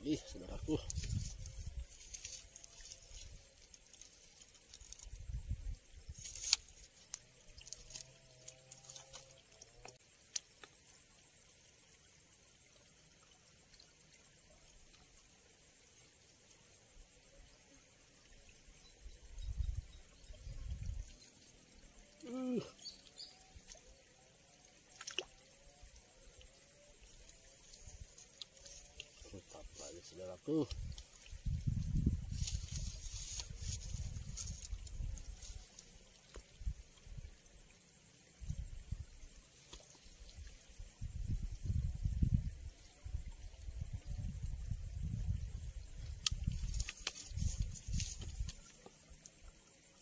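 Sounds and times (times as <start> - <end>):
insect trilling: 18.8 - 43.9.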